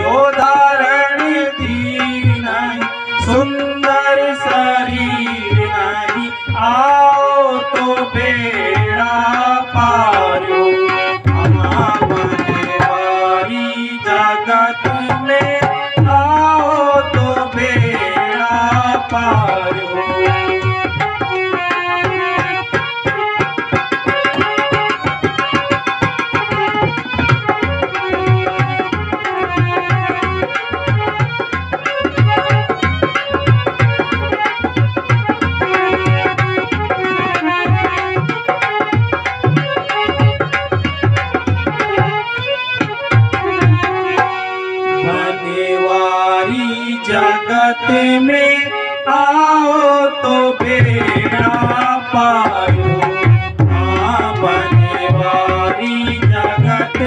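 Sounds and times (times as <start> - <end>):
hand drum: 11.2 - 13.0, 18.8 - 44.2, 50.6 - 57.0.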